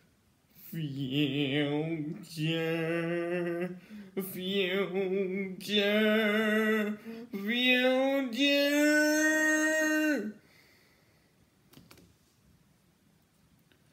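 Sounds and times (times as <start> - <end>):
boy singing long held notes: 0.6 - 10.4.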